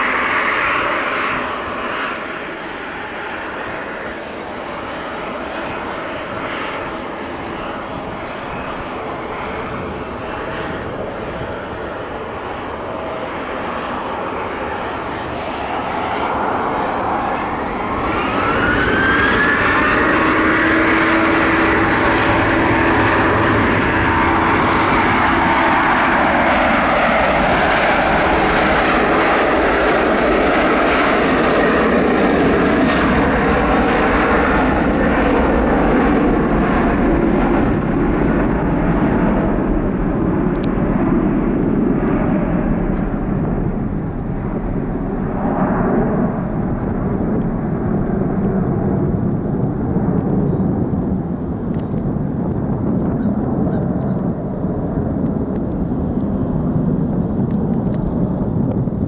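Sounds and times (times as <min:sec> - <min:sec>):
jet engines spooling up: 0:00.0 - 0:59.0.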